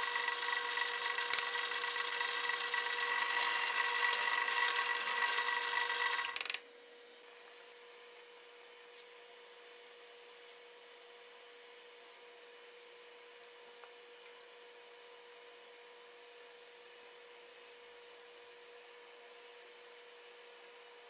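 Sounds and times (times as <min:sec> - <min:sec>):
drill press boring into wood: 0:00.0 - 0:06.6.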